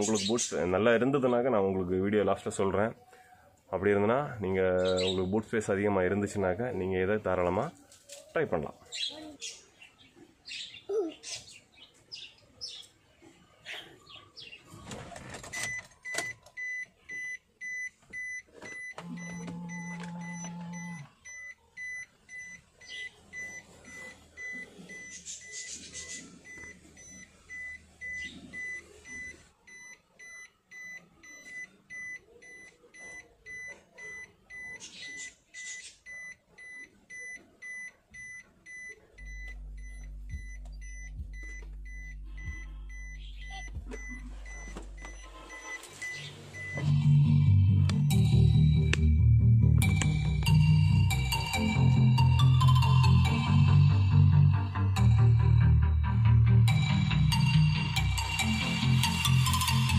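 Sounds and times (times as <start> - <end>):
high electronic beeps: 15.6 - 59.9
low steady hum: 39.1 - 45.8.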